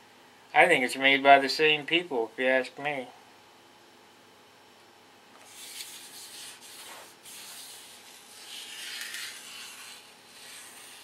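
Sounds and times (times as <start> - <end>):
fingers and tool rubbing tape: 5.4 - 11.0.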